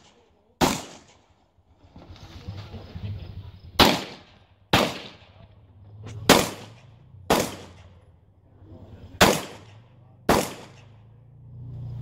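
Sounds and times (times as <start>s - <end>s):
handgun shots echoing: 0.0s - 1.2s, 3.8s - 5.2s, 6.2s - 7.9s, 9.2s - 11.0s.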